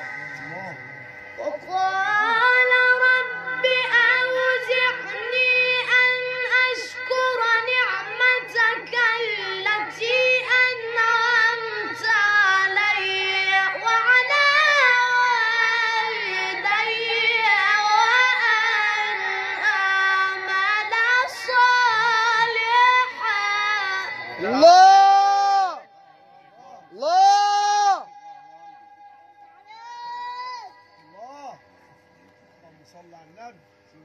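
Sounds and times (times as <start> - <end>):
boy chanting recitation: 1.4 - 24.8.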